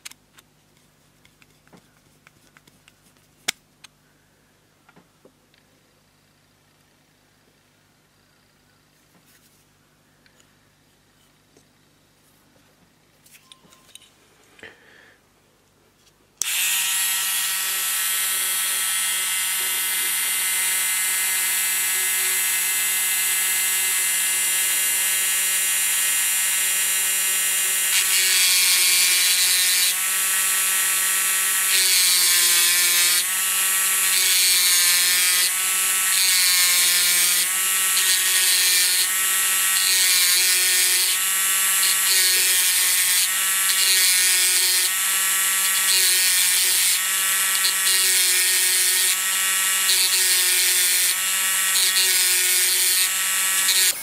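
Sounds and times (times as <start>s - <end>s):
rotary tool whining: 16.4s - 54.0s.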